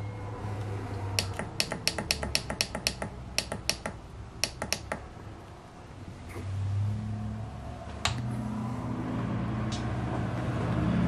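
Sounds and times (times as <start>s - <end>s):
thermostat button clicks: 1.2s - 5.1s.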